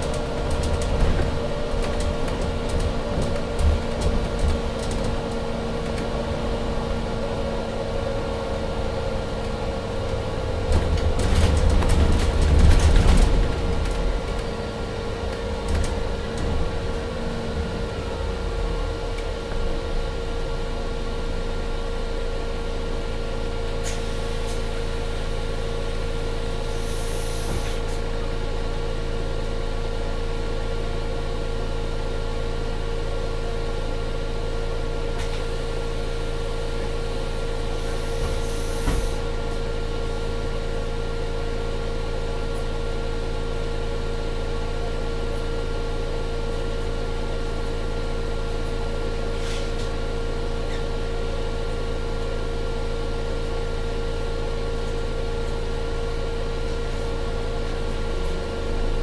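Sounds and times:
bus drive drone and hum: 0.0s - 59.0s
short air hisses: 26.8s - 27.9s, 37.8s - 39.2s.

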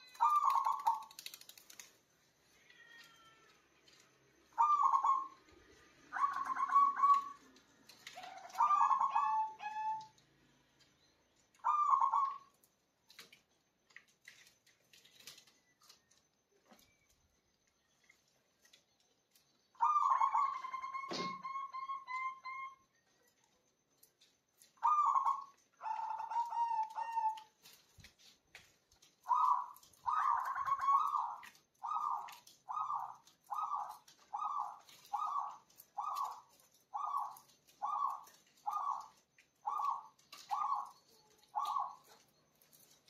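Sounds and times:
dove cooing: 0.0s - 1.2s, 4.6s - 10.2s, 11.6s - 12.5s, 19.8s - 22.8s, 24.8s - 27.6s, 29.2s - 42.3s.

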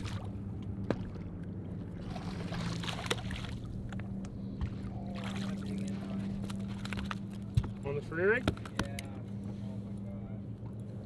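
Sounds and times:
water splashing: 0.0s - 4.0s, 5.0s - 7.4s
boat motor humming: 0.0s - 11.0s.

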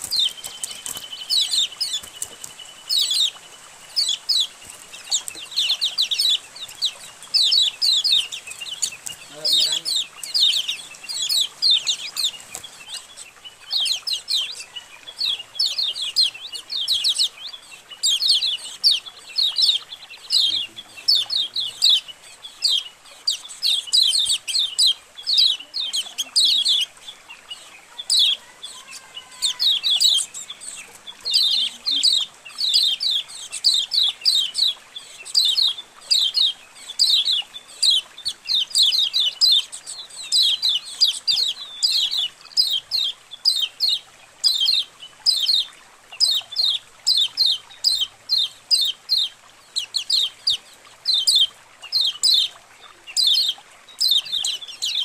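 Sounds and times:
flock of birds chirping: 0.0s - 55.0s.

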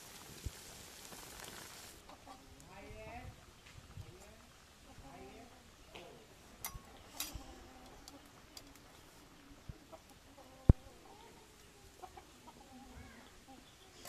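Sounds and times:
chickens clucking: 2.0s - 2.8s, 4.7s - 14.0s.

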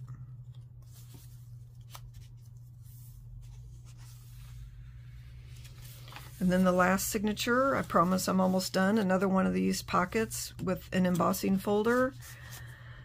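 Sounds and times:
low steady hum: 0.0s - 13.0s
thick paper rustling: 5.5s - 9.1s.

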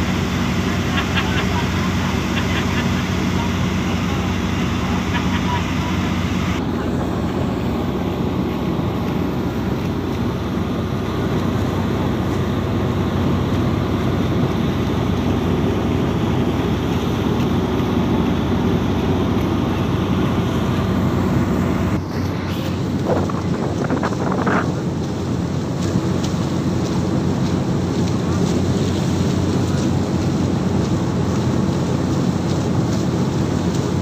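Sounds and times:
boat engine running: 0.0s - 34.0s
water rushing along hull: 0.0s - 34.0s
wind on microphone: 20.6s - 25.2s.

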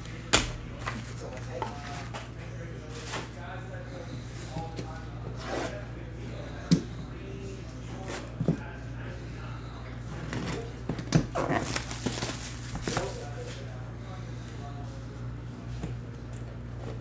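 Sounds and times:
low electrical hum: 0.0s - 17.0s
fingers rubbing plastic wrap: 11.3s - 13.2s.

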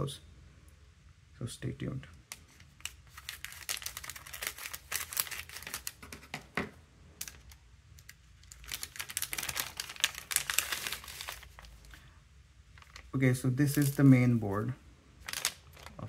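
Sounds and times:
plastic bag crinkling: 2.4s - 6.3s, 7.2s - 12.1s, 12.7s - 16.0s.

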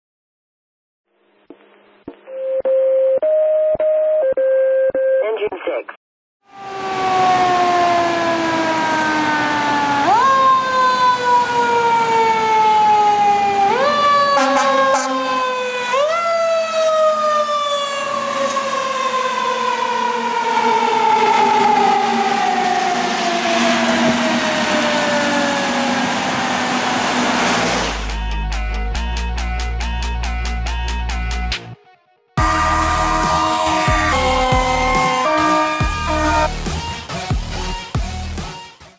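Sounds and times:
mechanical siren wailing: 6.4s - 27.6s, 32.4s - 36.6s
tyres hissing on wet road: 26.4s - 28.1s.

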